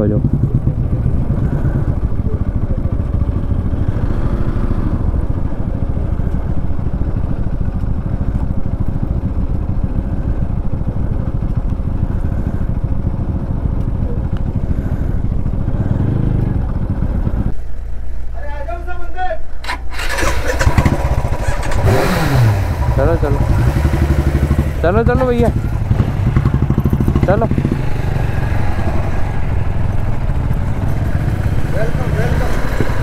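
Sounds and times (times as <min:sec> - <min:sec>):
motorcycle engines idling: 0:00.0 - 0:33.0.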